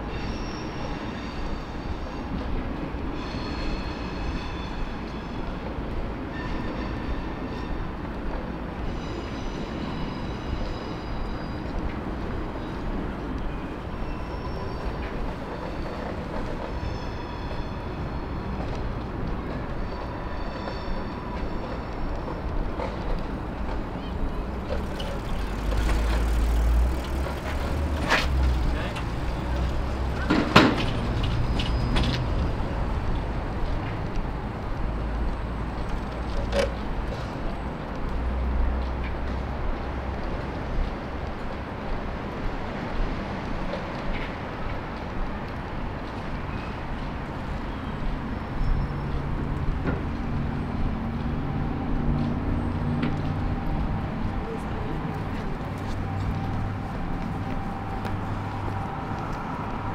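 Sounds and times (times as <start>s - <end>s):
low city rumble: 0.0s - 59.9s
low engine hum: 24.2s - 31.3s.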